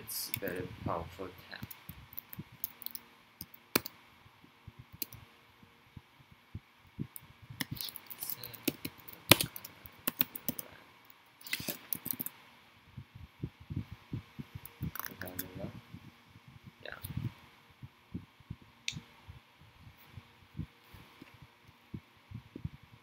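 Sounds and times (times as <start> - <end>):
computer keyboard typing: 1.6 - 3.9, 7.6 - 10.7, 11.5 - 12.3.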